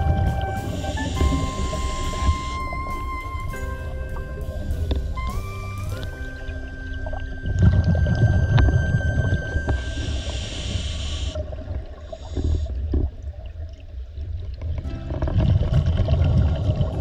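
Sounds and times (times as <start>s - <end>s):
exhaled bubbles rumbling: 0.0s - 17.0s
regulator inhalation hiss: 0.3s - 3.4s, 9.7s - 11.4s.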